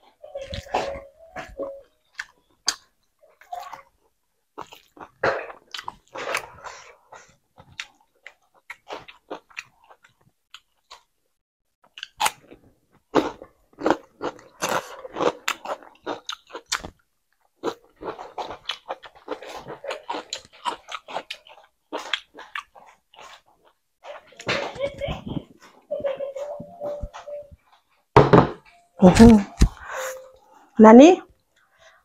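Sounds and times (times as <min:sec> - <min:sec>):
chewing with mouth clicks and crunches: 0:01.4 - 0:11.1, 0:11.8 - 0:24.4.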